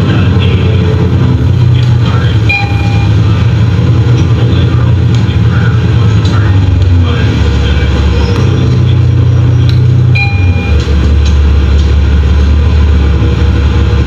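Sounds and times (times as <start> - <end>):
bus engine and road rumble: 0.0 - 14.0
brief high tone: 2.4 - 3.4, 10.2 - 10.9.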